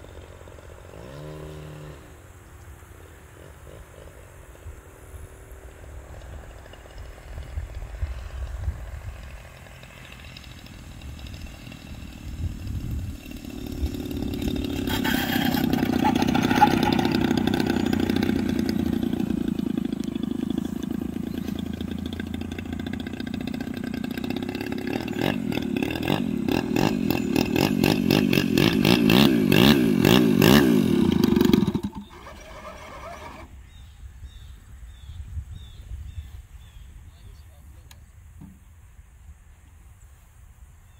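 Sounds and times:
model plane engine: 3.0s - 33.6s.

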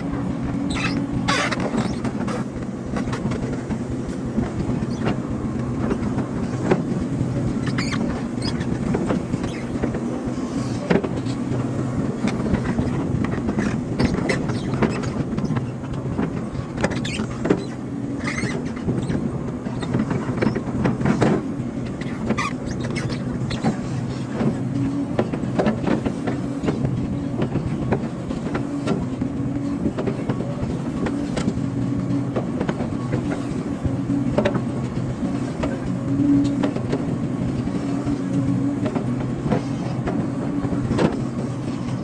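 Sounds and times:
excavator engine drone: 0.0s - 42.0s
short squeaks: 0.6s - 2.4s, 7.6s - 8.7s, 14.0s - 15.2s, 16.8s - 20.6s, 22.0s - 24.2s.

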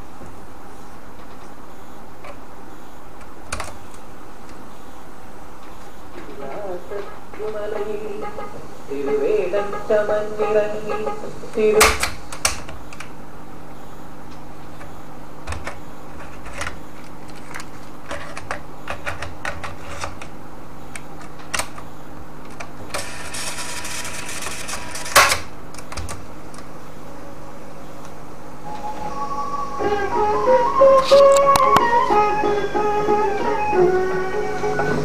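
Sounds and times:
motor and mains hum: 0.0s - 35.0s
tape hissing rush: 28.3s - 35.0s
guitar music from tape: 28.6s - 35.0s.

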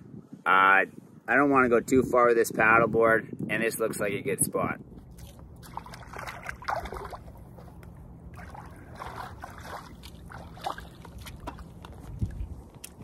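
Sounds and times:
shallow water splashing: 5.1s - 12.1s.

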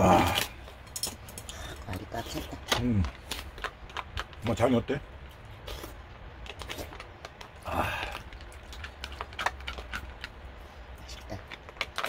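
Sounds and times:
breathy sound: 7.6s - 8.3s.

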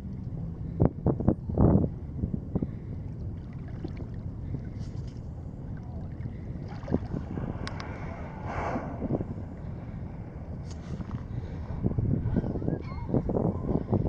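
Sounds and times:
wind rumbling on microphone: 0.0s - 14.0s
water splashing around kayak: 3.1s - 11.9s
brief rushing noise: 7.9s - 9.4s.

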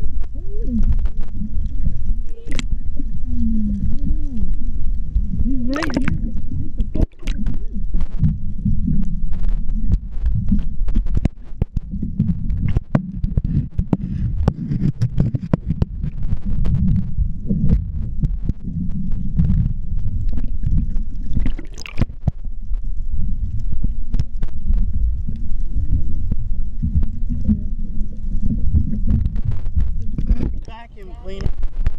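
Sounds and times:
muffled underwater rumble: 0.0s - 31.9s.

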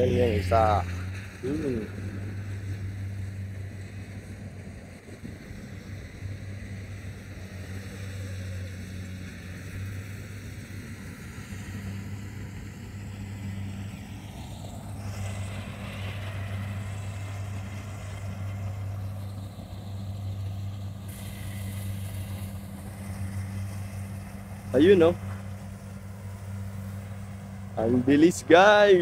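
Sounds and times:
combine harvester running: 0.0s - 29.0s.

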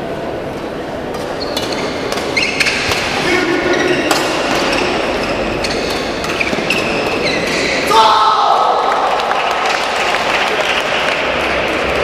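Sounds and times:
racquet hitting shuttlecock: 1.1s - 3.2s, 3.9s - 7.9s
shoes squeaking on court floor: 1.2s - 7.8s.

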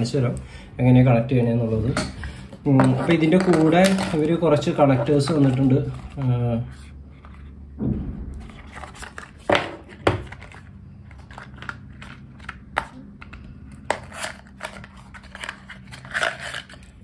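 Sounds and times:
paper packaging rustling: 2.8s - 7.6s, 8.5s - 17.0s.

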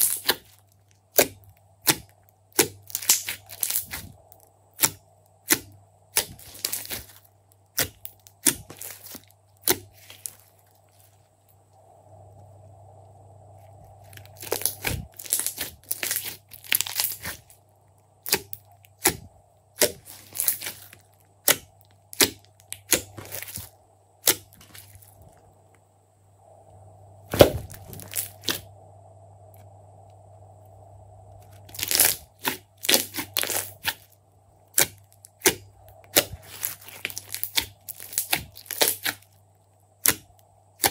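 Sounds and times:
slime clicking and popping: 0.0s - 4.1s, 14.3s - 17.4s, 18.2s - 19.2s, 19.8s - 24.8s, 34.7s - 39.2s.

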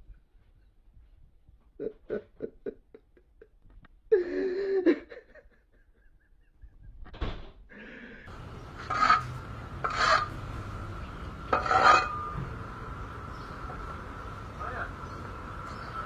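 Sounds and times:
man sobbing: 1.8s - 6.6s.

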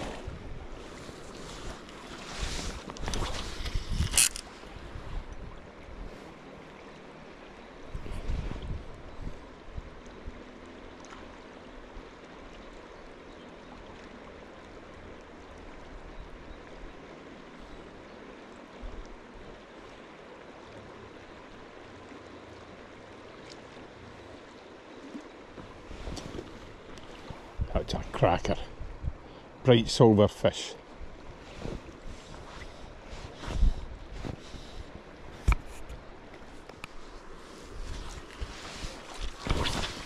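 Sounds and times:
river water rushing: 0.0s - 3.6s.

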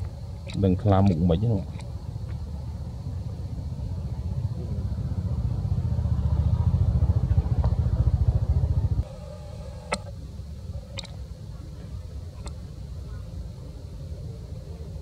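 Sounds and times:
engine with fast pulsing beat: 3.8s - 10.2s.

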